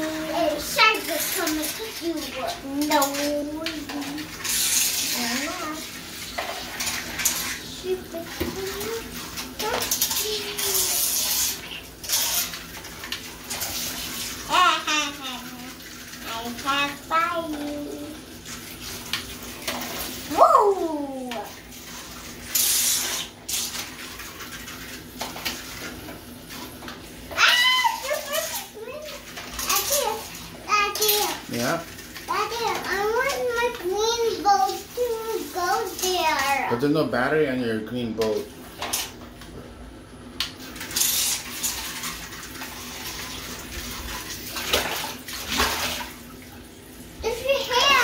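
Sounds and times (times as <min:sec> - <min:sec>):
child's voice: 0:00.0 - 0:04.3, 0:05.0 - 0:05.9, 0:07.6 - 0:11.2, 0:14.5 - 0:18.2, 0:20.3 - 0:21.6, 0:27.3 - 0:31.6, 0:32.2 - 0:36.8, 0:47.2 - 0:48.0
water splashing in bathtub: 0:00.0 - 0:37.4, 0:38.0 - 0:48.0.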